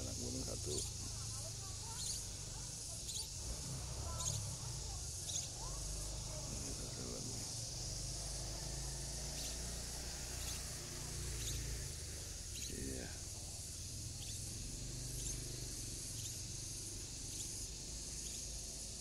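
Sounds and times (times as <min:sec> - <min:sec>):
brief lower insect call: 0:00.0 - 0:19.0
crickets chirping: 0:00.0 - 0:19.0.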